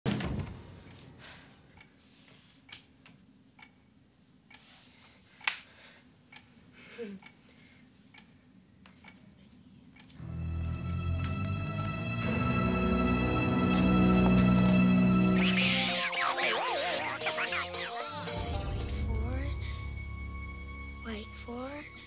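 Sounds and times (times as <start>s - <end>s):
soft hissy breaths: 0.6s - 2.8s, 4.5s - 9.7s
faint ticking: 6.2s - 9.2s.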